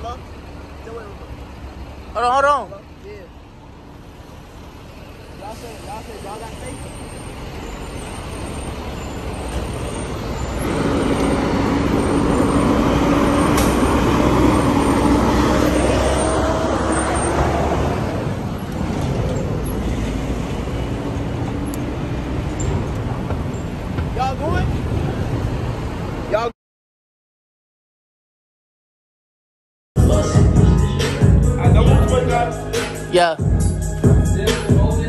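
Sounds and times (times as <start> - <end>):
truck driving past: 0.0 - 26.4
city traffic hum: 0.0 - 26.6, 30.0 - 35.0.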